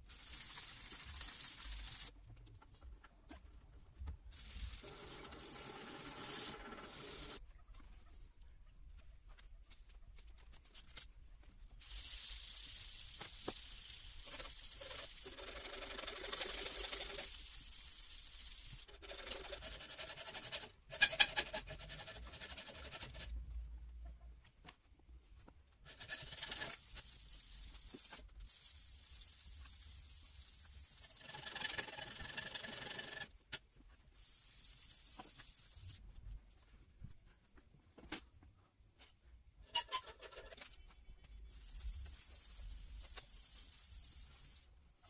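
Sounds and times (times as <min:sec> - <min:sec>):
sandpaper rubbing on steel blade: 0:00.0 - 0:02.1, 0:11.8 - 0:23.3, 0:25.8 - 0:33.3, 0:34.2 - 0:36.0, 0:41.4 - 0:44.7.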